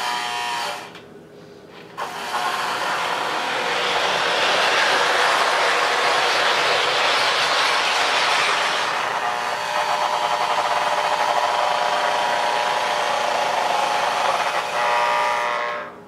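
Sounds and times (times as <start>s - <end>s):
buzzy fluttering tone: 2.0s - 14.6s
model train motor and wheels: 2.0s - 16.0s.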